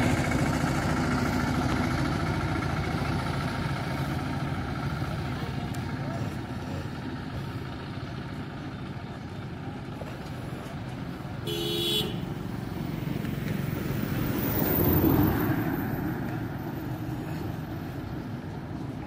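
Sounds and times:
road traffic: 0:00.0 - 0:19.0
vehicle passing: 0:10.5 - 0:19.0
vehicle horn toot: 0:11.4 - 0:12.4.

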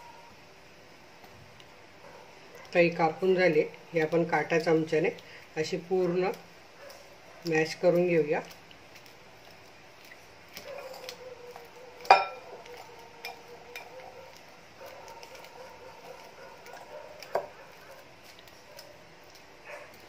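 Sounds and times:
fork clinking against glass bowl: 0:12.0 - 0:12.4.

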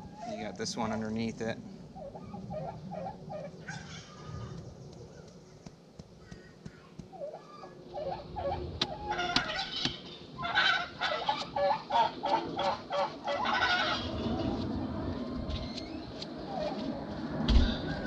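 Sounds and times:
fowl honking calls: 0:02.0 - 0:04.6, 0:07.2 - 0:14.2.

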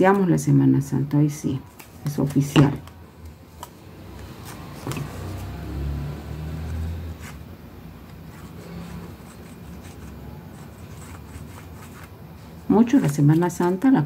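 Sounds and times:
cardstock handling: 0:03.6 - 0:05.5, 0:12.9 - 0:14.0
glue tip scraping paper: 0:08.3 - 0:12.2.

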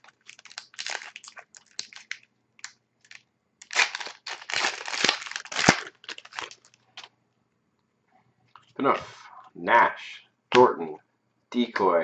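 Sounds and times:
wrapper crinkling and tearing: 0:00.0 - 0:07.1.

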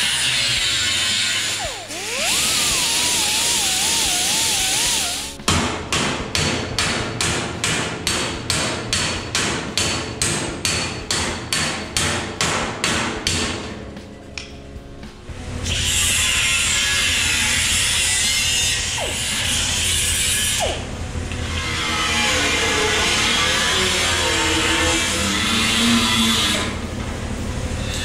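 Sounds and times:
electric grinder cutting steel: 0:00.0 - 0:05.4, 0:15.6 - 0:26.8
hammer striking steel panel: 0:05.4 - 0:13.7.

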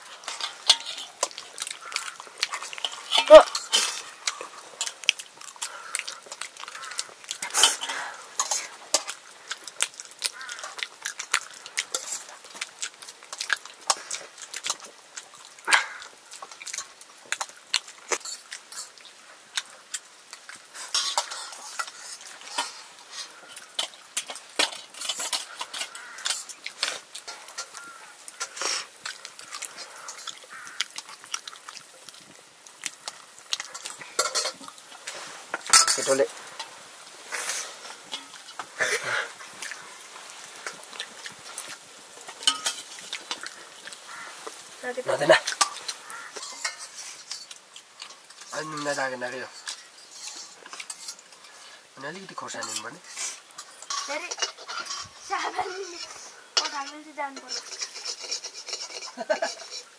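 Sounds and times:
cutlery clinking on dishes: 0:00.2 - 0:09.2, 0:20.8 - 0:22.8, 0:23.5 - 0:28.7, 0:33.6 - 0:34.8, 0:35.6 - 0:36.7, 0:42.3 - 0:43.5, 0:45.3 - 0:51.6, 0:52.5 - 0:55.2, 0:56.0 - 0:59.9.

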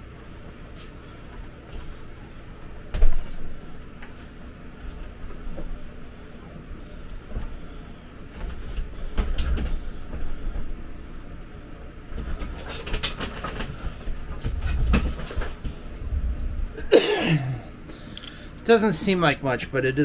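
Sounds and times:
knocks and rustling: 0:11.9 - 0:15.8
low rumble: 0:15.8 - 0:16.9.

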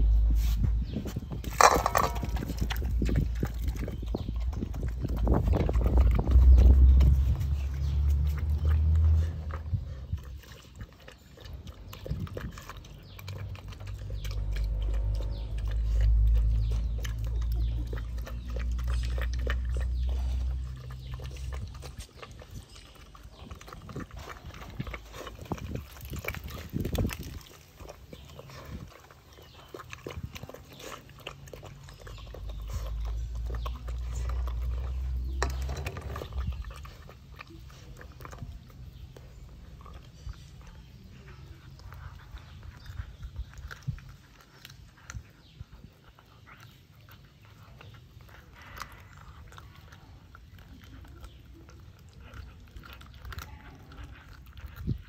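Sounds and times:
deep rumble: 0:00.0 - 0:10.8, 0:11.6 - 0:28.9, 0:29.9 - 0:44.3
dog chewing: 0:00.0 - 0:55.0.

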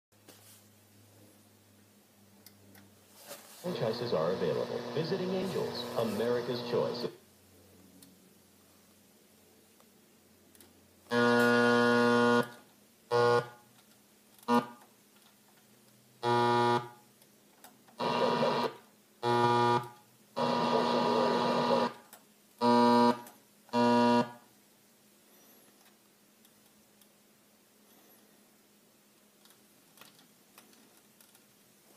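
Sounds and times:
radio static: 0:03.6 - 0:07.2, 0:18.0 - 0:18.8, 0:20.4 - 0:22.0
buzzing tone bursts: 0:03.8 - 0:07.2, 0:11.1 - 0:13.6, 0:14.5 - 0:14.8, 0:16.2 - 0:17.0, 0:18.0 - 0:22.0, 0:22.6 - 0:24.4.

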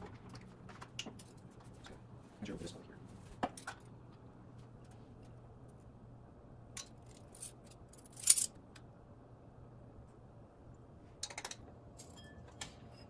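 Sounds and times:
faint steady hum: 0:00.0 - 0:13.0
metal spoons clinking on bowl: 0:11.2 - 0:13.0.

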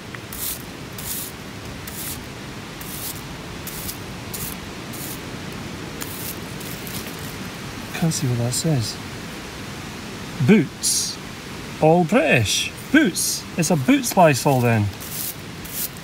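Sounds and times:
brush scratching over soil: 0:00.0 - 0:05.3, 0:06.0 - 0:07.5, 0:13.9 - 0:16.0
steady hiss: 0:00.0 - 0:16.0.

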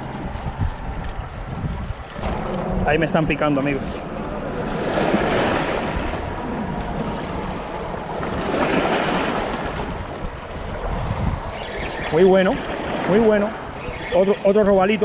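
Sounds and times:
wind noise on microphone: 0:00.0 - 0:14.8
waves washing against rocks: 0:02.2 - 0:14.5.

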